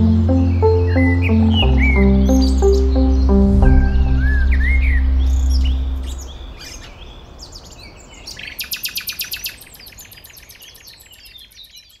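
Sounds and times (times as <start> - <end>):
songbirds chirping and singing: 0.0 - 3.4
low music notes: 0.0 - 7.1.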